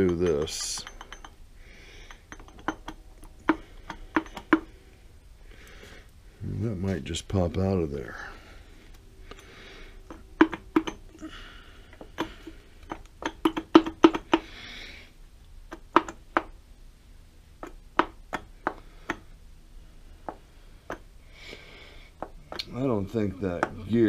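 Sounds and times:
metal gears clicking and knocking: 0.0 - 1.4, 2.2 - 4.7, 10.1 - 11.1, 12.0 - 14.4.

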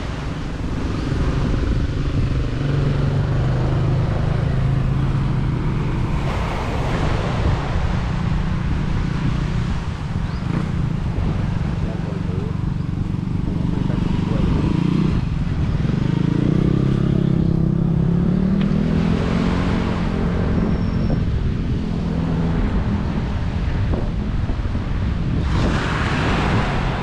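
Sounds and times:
loud rush of noise: 0.0 - 17.8
vehicle engine passing: 1.1 - 24.0.

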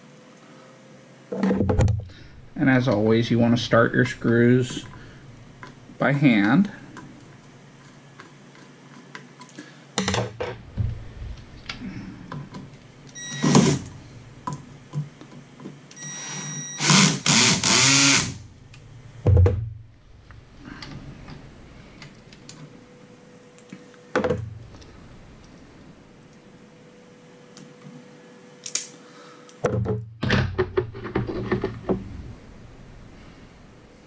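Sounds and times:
cordless screwdriver driving screws: 16.3 - 18.3.

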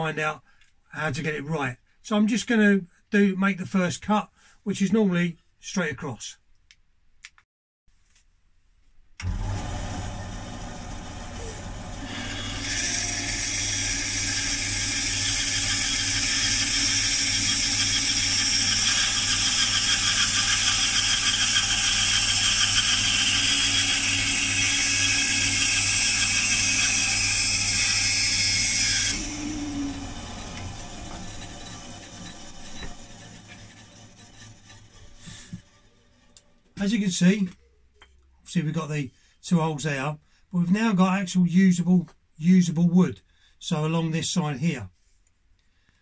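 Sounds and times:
bandsaw motor humming: 9.2 - 36.9
bandsaw blade cutting wood: 9.2 - 37.0.

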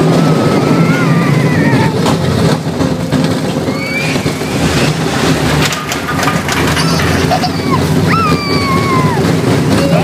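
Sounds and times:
roller coaster rumbling on track: 0.0 - 10.0.

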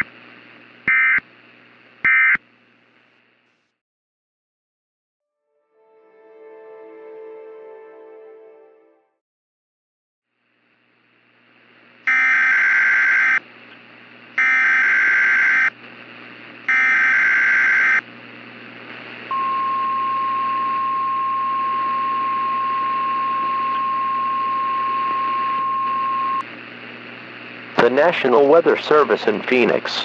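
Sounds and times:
radio hiss: 0.0 - 0.8, 25.3 - 30.0
buzzing warble data bursts: 0.9 - 1.2, 14.4 - 15.8, 16.7 - 18.0
steady warning alarm tone: 0.9 - 1.2, 2.1 - 2.4, 12.1 - 13.4, 14.4 - 15.8, 16.7 - 18.0, 19.3 - 26.4.

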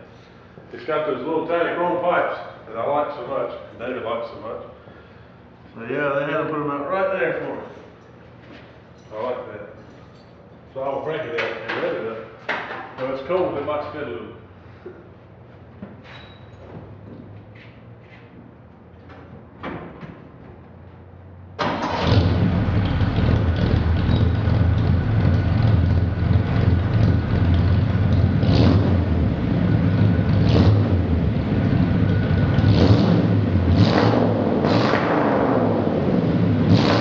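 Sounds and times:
engine revving in sharp bursts: 21.6 - 37.0
engine starting and running loudly: 21.6 - 37.0.

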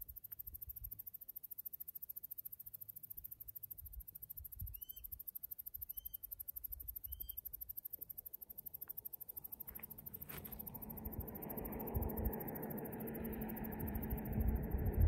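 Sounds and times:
wind on microphone: 10.9 - 15.0.

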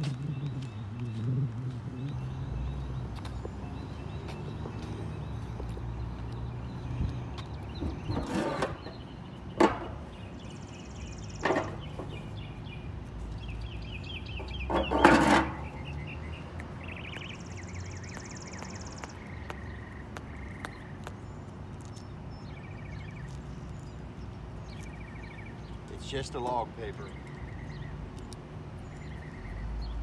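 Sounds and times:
birds chirping: 0.0 - 30.0.

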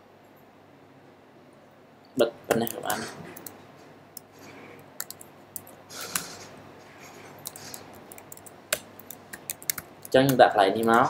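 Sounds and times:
faint room hiss: 0.0 - 11.0
keyboard keystrokes: 5.0 - 6.3, 7.4 - 11.0.

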